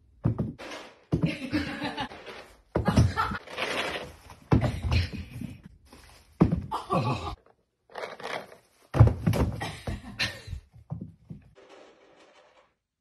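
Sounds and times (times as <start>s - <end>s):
toilet paper rolls tumbling on wood: 0.2s - 10.2s.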